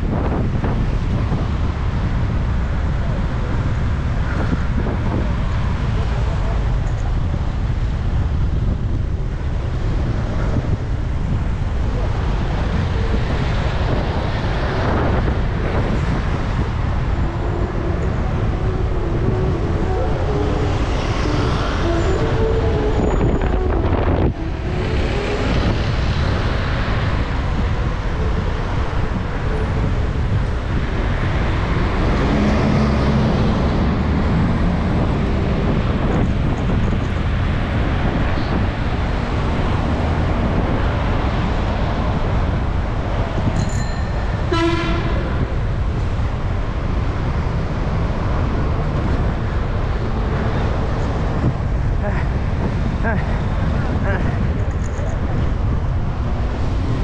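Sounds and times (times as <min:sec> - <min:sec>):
street traffic: 0:00.0 - 0:57.0
vehicles passing close: 0:00.0 - 0:57.0
wind on microphone: 0:00.0 - 0:57.0
engine droning: 0:01.3 - 0:43.5.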